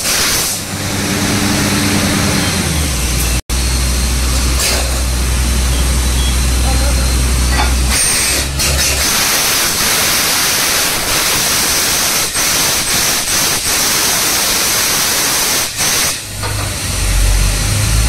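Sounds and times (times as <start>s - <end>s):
air and water rushing hiss: 8.2s - 16.4s.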